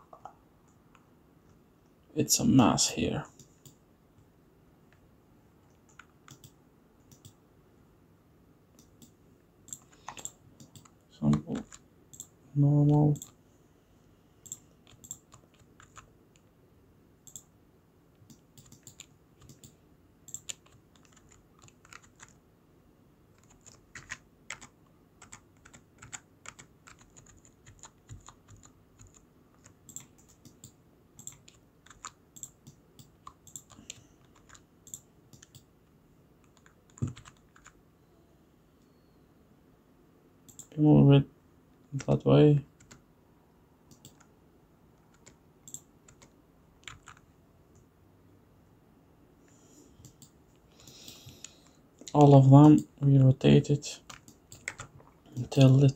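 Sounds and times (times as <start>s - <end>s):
keyboard and mouse clicking: 5.8s - 7.4s, 8.7s - 12.3s, 14.4s - 16.5s, 17.2s - 17.5s, 18.2s - 22.4s, 23.4s - 35.7s, 36.4s - 37.8s, 40.5s - 40.7s, 43.9s - 44.3s, 45.1s - 47.8s, 54.0s - 55.5s.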